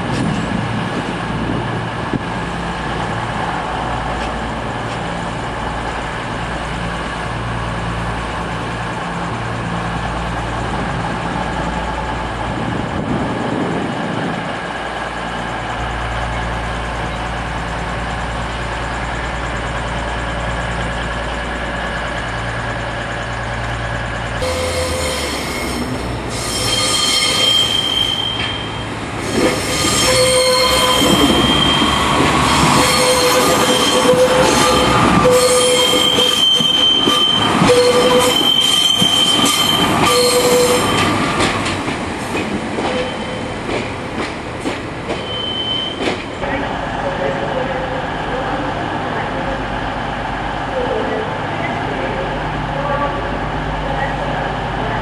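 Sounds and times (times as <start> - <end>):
diesel train idling: 0.1 - 45.4, 46.0 - 55.0
train wheels squealing on track: 15.1 - 43.9, 45.1 - 46.4.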